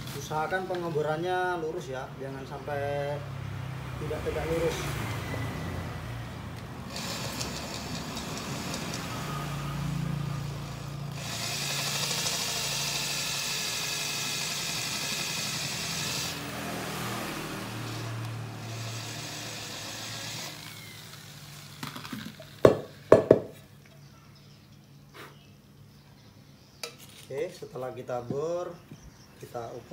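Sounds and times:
electric drill boring into metal: 0:06.9 - 0:16.6, 0:17.2 - 0:22.9
sharp knocks of metal cover: 0:22.6 - 0:23.6.

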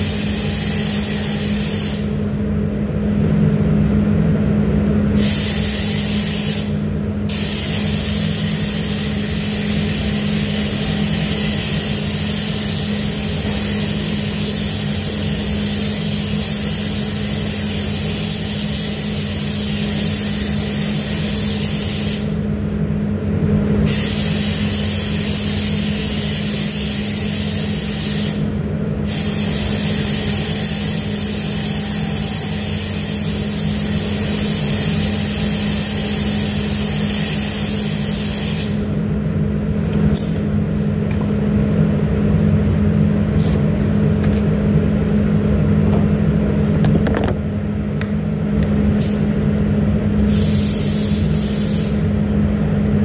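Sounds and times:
spray gun hissing: 0:00.0 - 0:02.2, 0:05.2 - 0:22.3, 0:23.9 - 0:28.5, 0:29.1 - 0:38.8, 0:50.3 - 0:52.0
steady low hum: 0:00.0 - 0:53.0.

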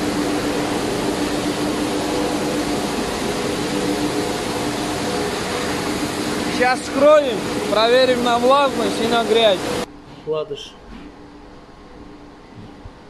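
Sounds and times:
machinery drone: 0:00.0 - 0:13.0.

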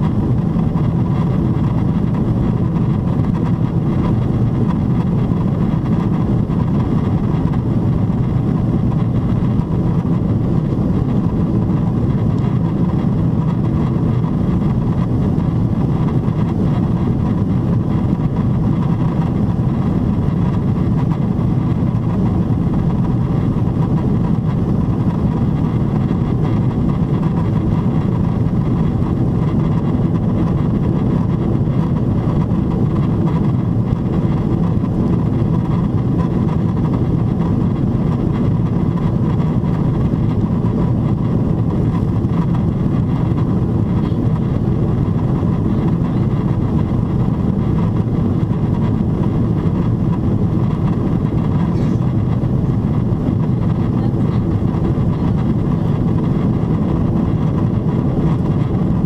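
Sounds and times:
airliner cabin rumble: 0:00.0 - 0:59.0.

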